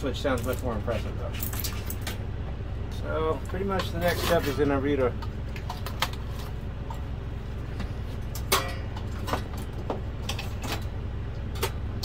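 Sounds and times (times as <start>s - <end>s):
steady low hum: 0.0s - 12.0s
hand tools clicking and clanking: 0.2s - 2.2s, 3.4s - 7.0s, 8.3s - 10.9s.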